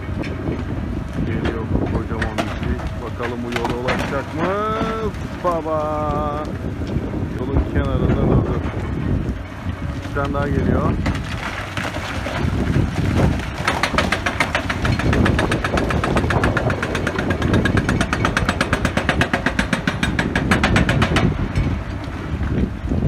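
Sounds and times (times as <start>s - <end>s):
hydraulic rock breaker hammering rock: 0.0s - 22.3s
diesel engine running: 0.0s - 23.0s.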